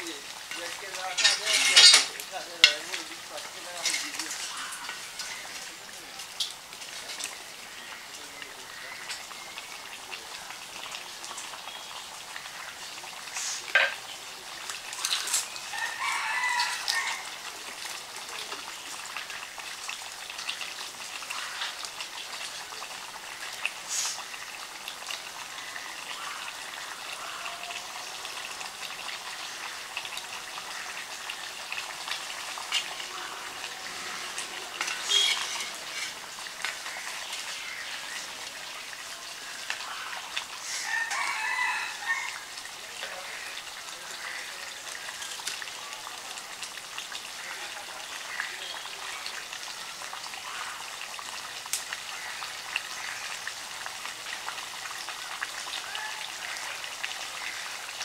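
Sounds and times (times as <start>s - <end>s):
curry bubbling in a pot: 0.0s - 58.0s
chickens calling: 29.5s - 38.5s.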